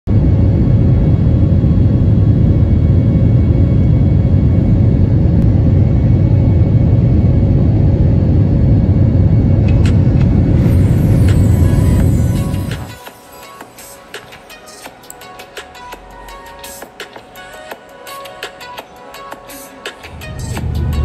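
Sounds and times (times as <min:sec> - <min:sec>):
jet engine cabin rumble: 0:00.1 - 0:13.0, 0:20.1 - 0:21.0
faint steady hum: 0:00.1 - 0:21.0.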